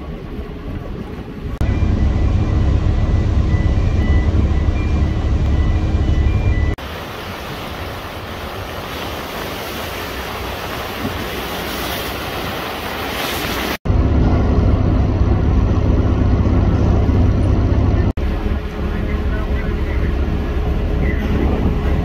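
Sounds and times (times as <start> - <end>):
boat engine droning: 0.0 - 22.0
wind buffeting microphone: 0.0 - 22.0
rushing churning water: 6.2 - 22.0.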